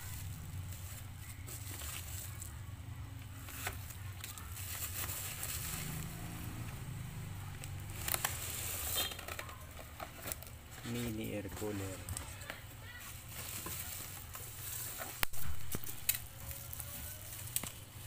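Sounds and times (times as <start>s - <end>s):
bubble wrap crinkling: 0.0s - 6.6s, 7.4s - 18.0s
sharp crackles and clicks: 7.4s - 10.6s, 14.2s - 18.0s.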